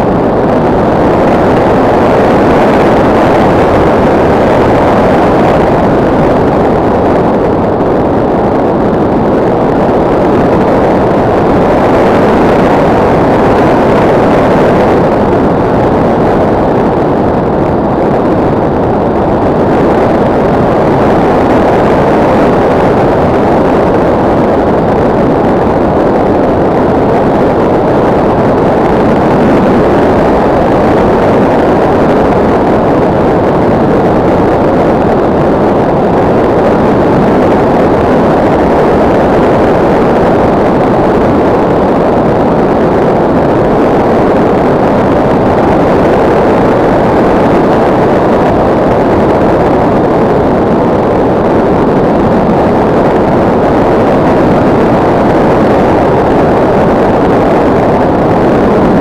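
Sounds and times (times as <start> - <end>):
loud steady air rush: 0.0 - 59.0.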